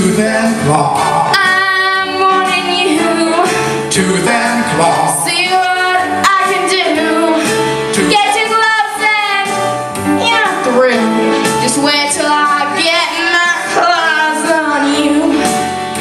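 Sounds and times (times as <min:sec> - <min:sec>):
instrumental accompaniment: 0:00.0 - 0:16.0
woman singing into microphone: 0:01.3 - 0:03.6, 0:05.0 - 0:09.6, 0:10.7 - 0:15.5.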